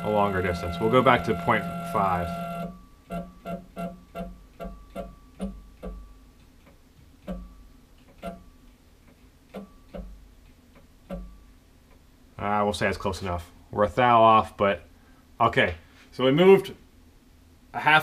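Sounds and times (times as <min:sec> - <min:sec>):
stepper motor buzzing hum: 0:00.0 - 0:04.7.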